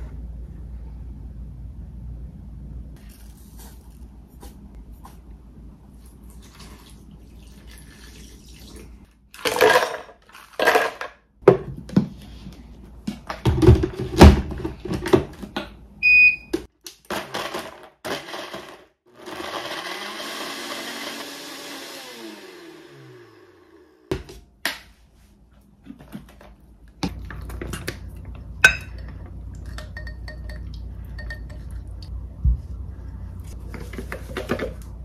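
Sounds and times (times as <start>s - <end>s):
kitchen knocks and clatter: 13.1s - 15.8s
blender running: 17.3s - 24.1s.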